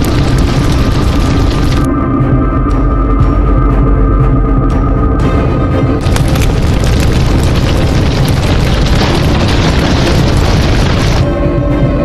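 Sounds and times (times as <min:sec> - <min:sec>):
rough rumbling boom effect: 0:06.0 - 0:11.3.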